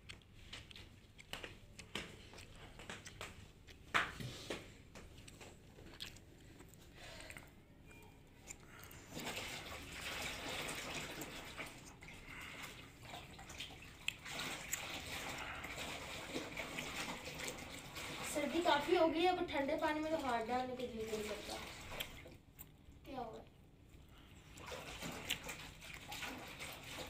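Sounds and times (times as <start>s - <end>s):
water sloshing and splashing: 8.7s - 22.5s, 24.1s - 27.0s.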